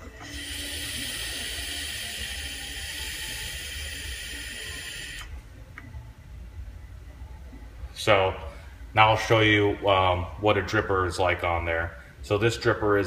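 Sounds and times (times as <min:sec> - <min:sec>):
vape atomizer hiss: 0:00.2 - 0:05.3.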